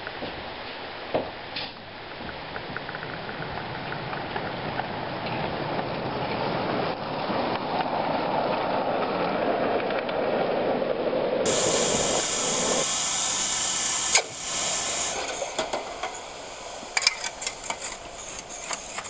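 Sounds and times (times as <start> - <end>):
miniature steam locomotive running: 11.4 - 19.0
steam hissing: 11.4 - 19.0.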